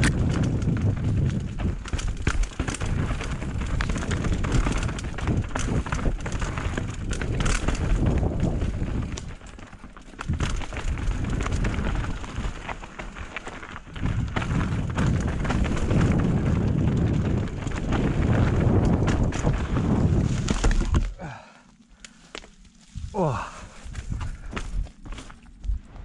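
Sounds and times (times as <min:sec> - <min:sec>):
wind on microphone: 0:00.0 - 0:09.3, 0:13.9 - 0:21.0, 0:23.0 - 0:24.9
bike knocks and rattles: 0:00.0 - 0:21.4, 0:23.3 - 0:25.6
tyres crunching over stones: 0:00.0 - 0:25.8.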